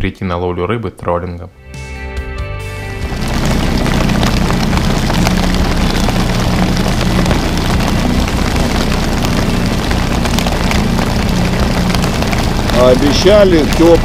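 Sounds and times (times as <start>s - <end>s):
outboard motor running: 2.8s - 14.0s
rain hitting a boat: 3.0s - 14.0s.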